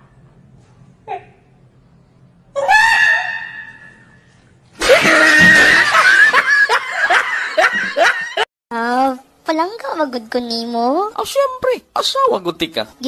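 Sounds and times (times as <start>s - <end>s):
man shrieking with laughter: 4.8s - 6.0s.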